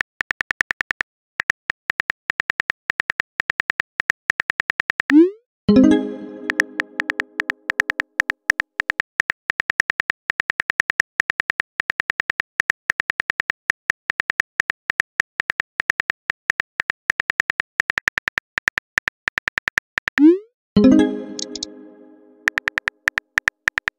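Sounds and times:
smartphone keyboard typing clicks: 6.4 - 20.2, 21.3 - 21.7, 22.4 - 23.9.

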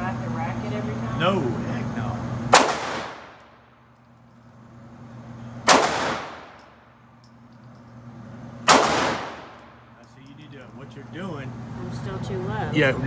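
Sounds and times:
pistol shot with echo: 2.5 - 3.4, 5.7 - 6.6, 8.7 - 9.6.

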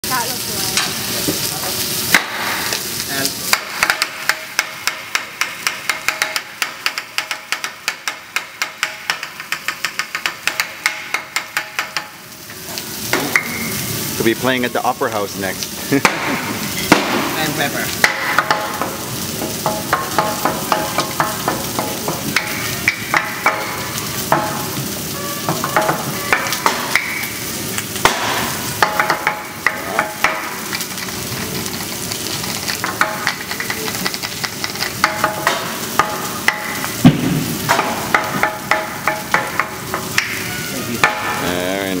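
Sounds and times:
food sizzling on a griddle: 0.0 - 42.0
wooden pepper mills clacking: 31.0 - 36.1.

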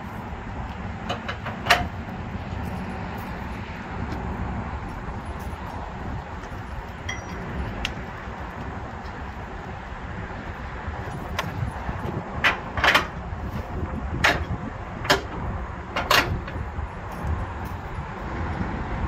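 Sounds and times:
metal hooks clanking on rail: 0.7 - 8.1, 11.0 - 18.1.

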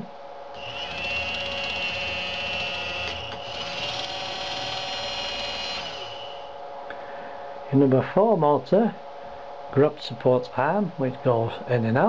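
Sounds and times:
small electric motor whining: 0.6 - 6.6.

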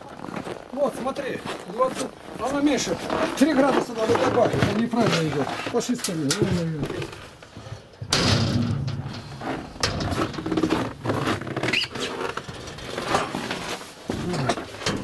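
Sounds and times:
scuffing footsteps: 0.0 - 5.5
rustling: 0.0 - 15.0.

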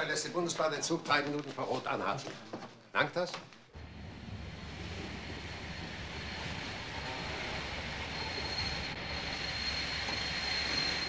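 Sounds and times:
train rumbling: 3.8 - 11.0
high brake squeal: 5.5 - 11.0.

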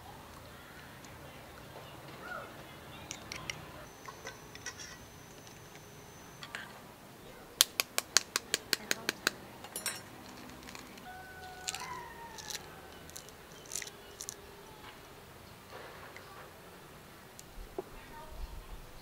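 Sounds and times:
egg shell tapped with utensil: 7.6 - 10.9
shell clicks: 10.3 - 14.4.

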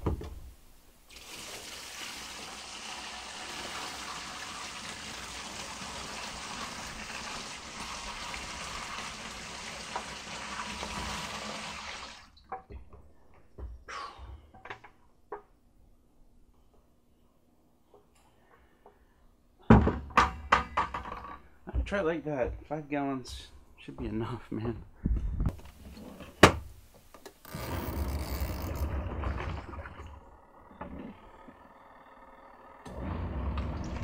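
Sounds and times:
water pouring into tub: 1.1 - 12.3.

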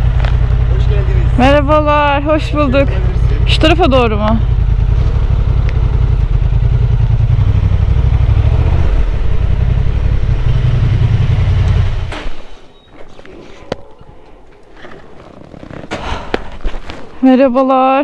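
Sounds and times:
motorcycle engine running: 0.0 - 12.5.

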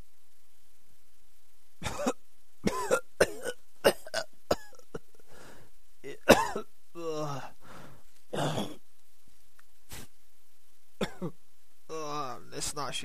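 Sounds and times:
man coughing: 1.8 - 5.1, 6.1 - 7.5, 8.4 - 8.8, 11.0 - 11.3.

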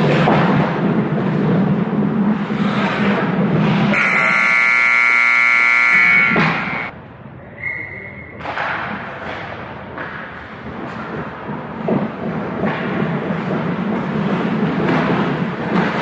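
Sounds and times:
scoreboard buzzer blast: 3.9 - 6.9.

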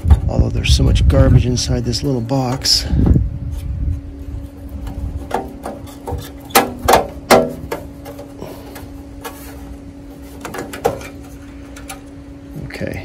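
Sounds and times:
steady hum: 0.0 - 13.0
handling knocks and clicks: 4.8 - 9.6, 10.2 - 12.2
sharp knocks on metal box: 5.3 - 8.2, 10.4 - 11.2.

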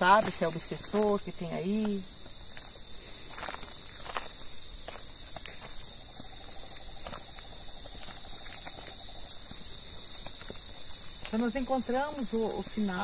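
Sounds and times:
night insects chirping: 0.0 - 13.0.

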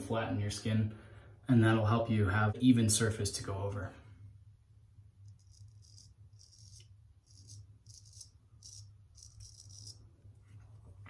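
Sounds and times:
straight razor scraping stubble: 5.3 - 10.0.

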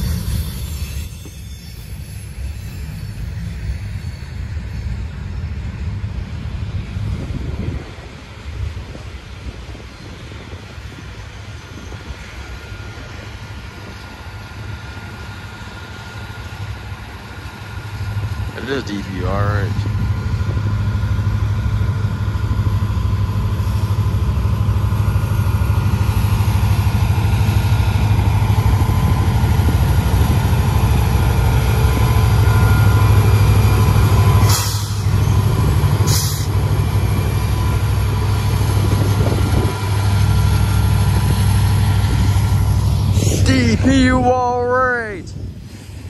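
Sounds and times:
locomotive engine running: 0.0 - 46.0
brief air hisses: 34.4 - 35.1, 36.1 - 36.5.

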